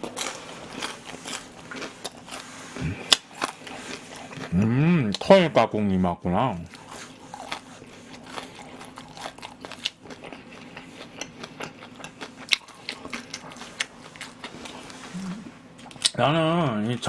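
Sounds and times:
batter crunching: 0.0s - 5.4s, 6.6s - 15.2s
chewing food: 0.0s - 5.4s, 6.6s - 16.2s.

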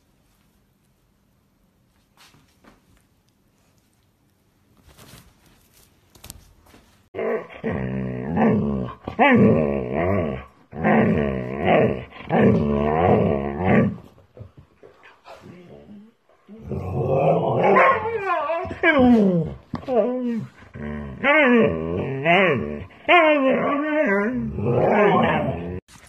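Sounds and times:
dog howling grumbles: 7.2s - 14.1s, 15.4s - 25.8s.

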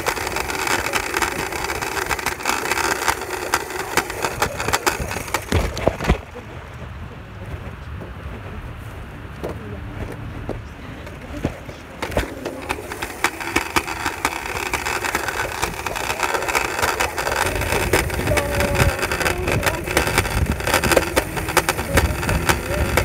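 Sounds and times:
scooter wheels rolling on concrete: 0.0s - 23.0s
fabric rubbing on microphone: 7.3s - 23.0s.

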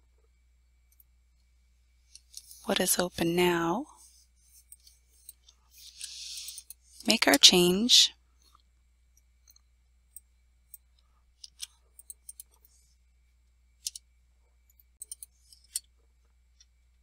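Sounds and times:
faint low hum: 0.0s - 17.0s.

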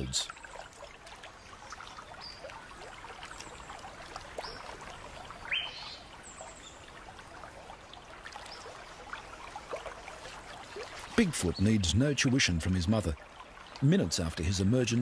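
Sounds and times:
creek trickling: 0.0s - 15.0s
small birds chirping: 3.3s - 7.1s.

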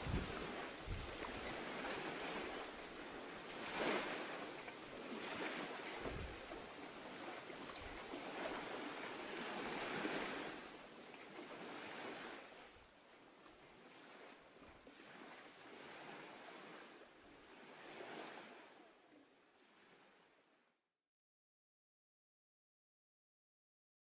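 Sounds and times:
wind gusting on microphone: 0.0s - 4.4s, 5.2s - 6.6s
sea water rushing along hull: 0.0s - 20.6s.

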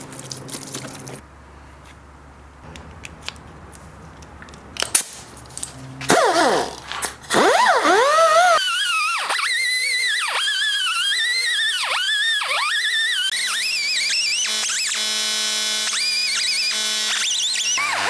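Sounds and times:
tool handling clicks: 2.7s - 7.3s
rotary tool whining: 6.1s - 18.0s.

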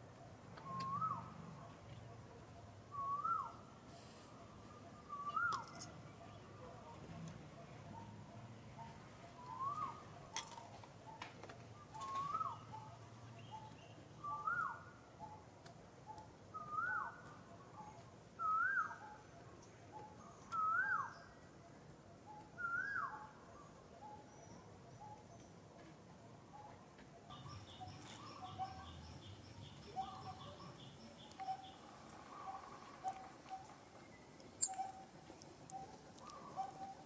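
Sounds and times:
bird whistling call: 0.6s - 1.3s, 2.9s - 3.6s, 5.1s - 5.7s, 9.5s - 10.0s, 11.9s - 12.6s, 13.5s - 14.8s, 16.6s - 17.2s, 18.4s - 19.1s, 20.6s - 21.2s, 22.3s - 23.3s, 34.6s - 35.1s.

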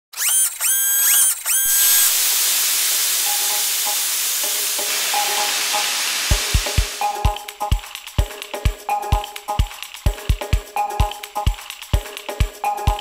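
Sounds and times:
long hiss: 1.8s - 7.2s
kick drum beats: 6.3s - 13.0s.

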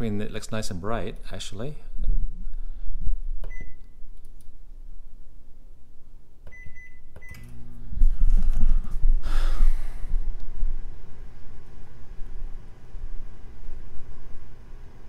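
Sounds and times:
microwave button beeps: 3.4s - 4.0s, 6.5s - 7.6s
microwave oven humming: 5.6s - 15.0s.

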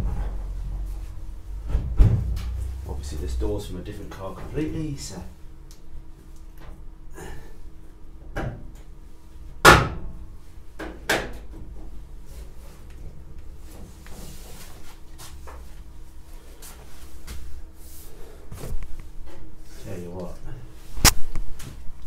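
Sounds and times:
hollow metal clunks and knocks: 0.0s - 2.9s.

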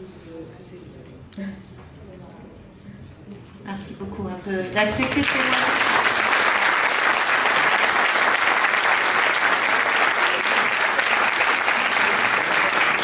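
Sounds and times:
people clapping: 4.9s - 13.0s.

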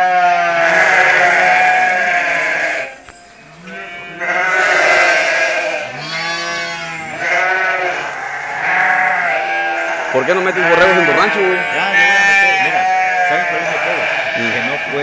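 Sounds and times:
sheep and lambs bleating: 0.0s - 15.0s.

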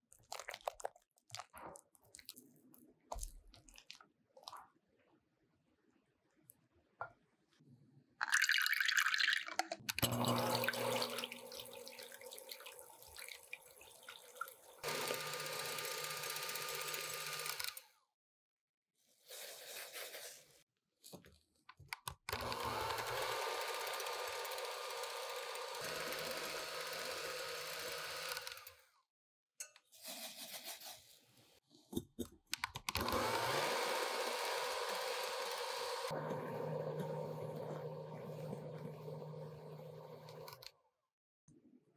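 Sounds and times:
electric hand mixer whipping: 10.0s - 12.0s, 14.8s - 17.8s, 22.3s - 28.8s, 33.0s - 40.6s.

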